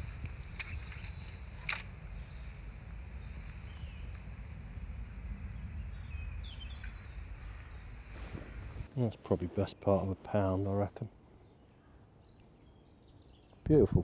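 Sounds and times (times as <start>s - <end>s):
low rumble: 0.0s - 8.9s
small birds chirping: 0.0s - 14.0s.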